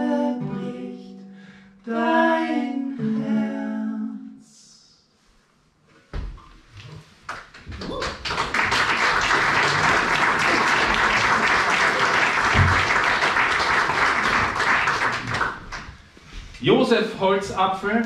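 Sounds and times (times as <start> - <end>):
audience applauding: 7.3 - 16.1.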